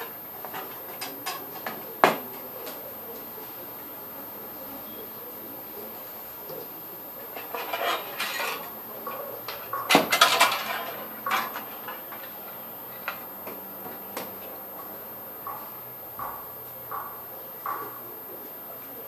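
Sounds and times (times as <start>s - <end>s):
metal panel scraping on glass: 7.3s - 12.4s
sharp knocks: 15.4s - 18.0s.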